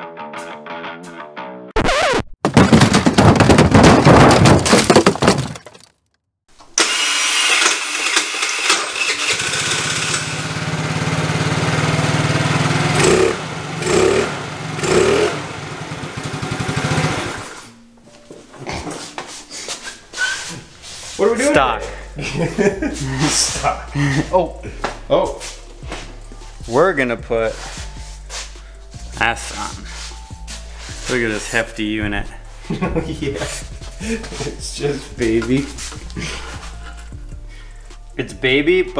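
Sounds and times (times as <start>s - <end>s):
scooter engine idling: 9.0s - 17.6s.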